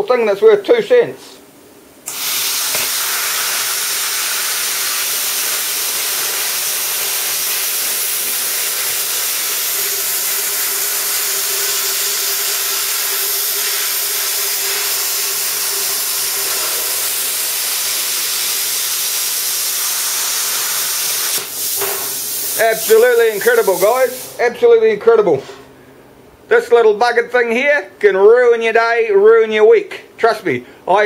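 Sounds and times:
plasma cutter hissing: 0:02.1 - 0:24.4.

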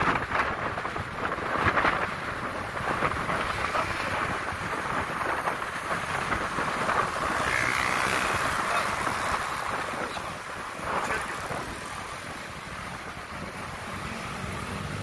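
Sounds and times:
road noise: 0:00.0 - 0:15.0
wind buffeting microphone: 0:00.0 - 0:15.0
motorbike engine: 0:03.3 - 0:15.0.

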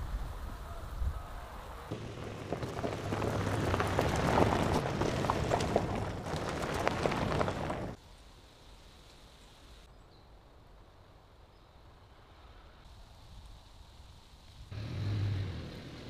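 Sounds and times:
tyres crunching over gravel: 0:01.9 - 0:08.0
low engine hum: 0:14.7 - 0:16.0.

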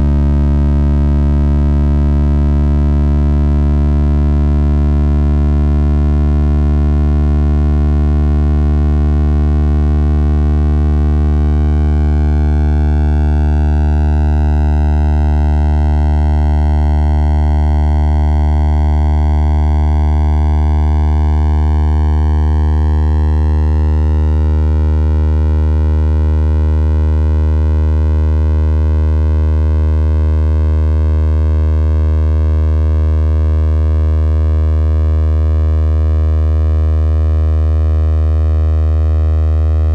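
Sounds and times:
synthesized low drone: 0:00.0 - 0:39.9.

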